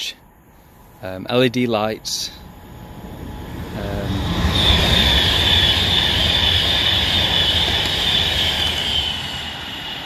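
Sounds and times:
electric train passing: 0:00.0 - 0:10.0.

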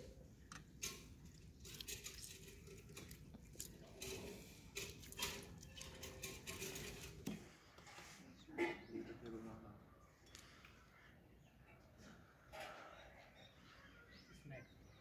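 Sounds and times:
wet squishing of lemons: 0:00.5 - 0:07.0.

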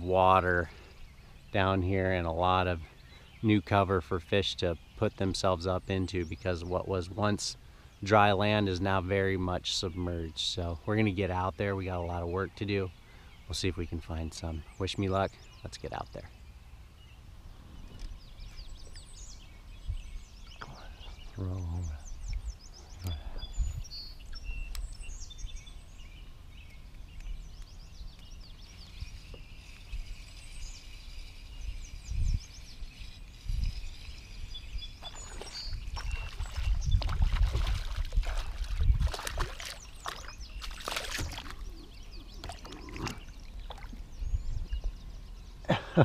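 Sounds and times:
birds chirping: 0:00.0 - 0:46.0
low wind rumble: 0:16.3 - 0:45.8
water splashing against kayak: 0:35.0 - 0:41.6.

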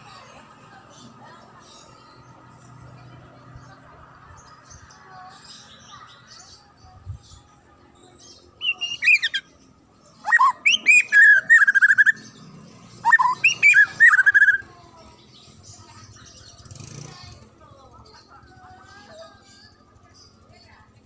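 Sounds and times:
bird singing whistles and trills: 0:08.2 - 0:09.6, 0:10.2 - 0:14.7.

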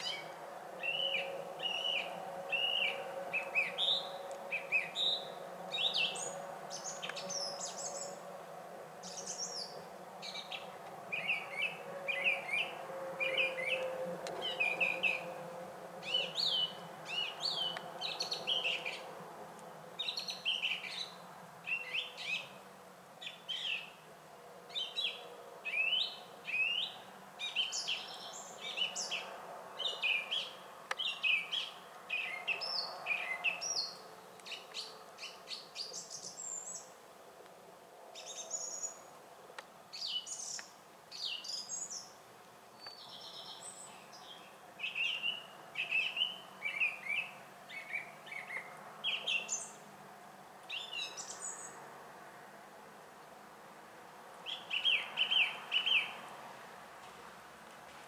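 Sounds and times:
songbirds chirping and trilling: 0:00.0 - 0:57.3.

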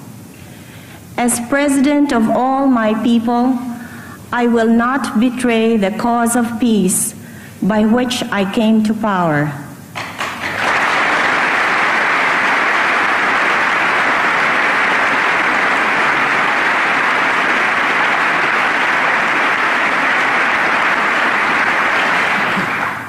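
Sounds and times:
large audience applauding: 0:10.2 - 0:23.0.

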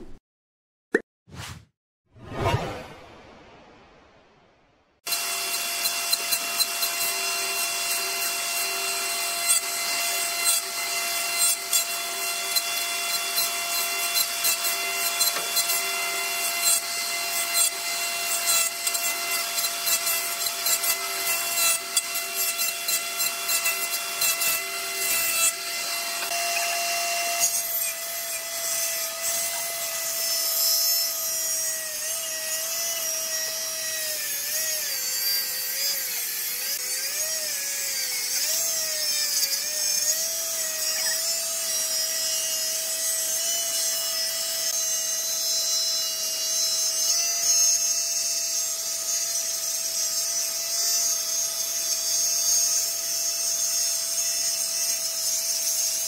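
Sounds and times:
jointer whine: 0:05.1 - 0:33.8
wood cutting crackle: 0:05.1 - 0:56.0.

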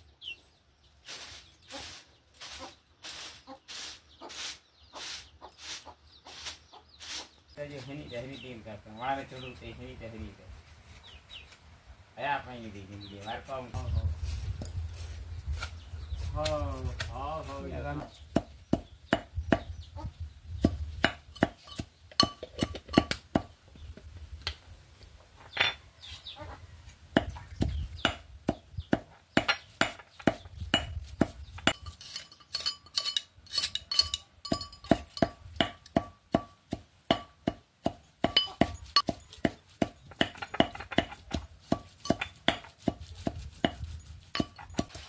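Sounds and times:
sharp knocks on stone slab: 0:34.9 - 0:43.0.

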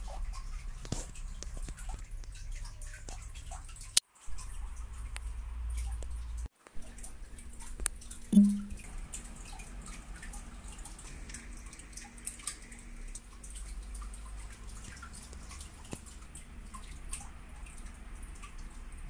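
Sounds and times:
small clicks and ticks: 0:00.0 - 0:19.0
low steady hum: 0:02.1 - 0:19.0.

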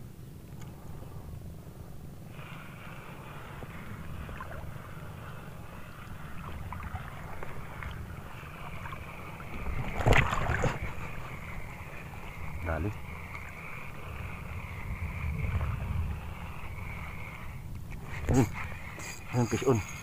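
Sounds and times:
wind rumble on microphone: 0:00.0 - 0:20.0
water lapping: 0:02.3 - 0:20.0.

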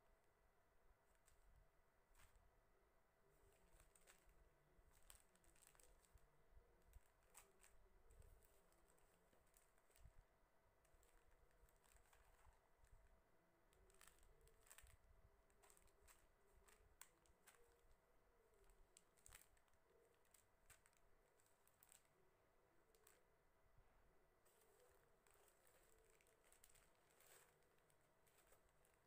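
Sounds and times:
plastic bead packets crackling: 0:03.5 - 0:10.2, 0:10.8 - 0:13.0, 0:13.7 - 0:18.0, 0:18.6 - 0:23.3, 0:24.4 - 0:29.0.

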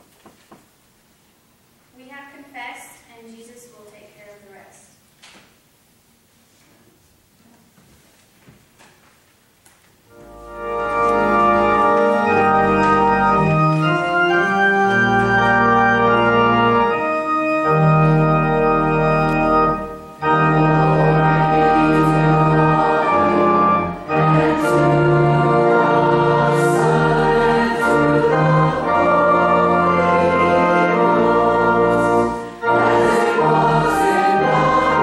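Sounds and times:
organ playing sustained chords: 0:10.1 - 0:35.0.

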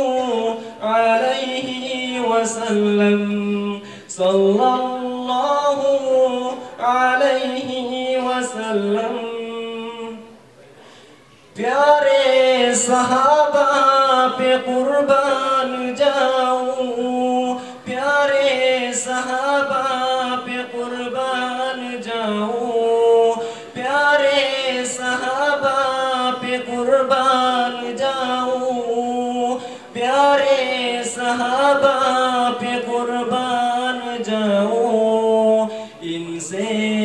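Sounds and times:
man singing solo: 0:11.6 - 0:37.0.

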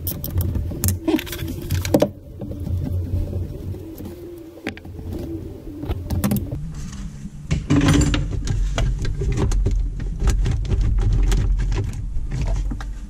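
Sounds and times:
low handling rumble: 0:00.0 - 0:13.0.

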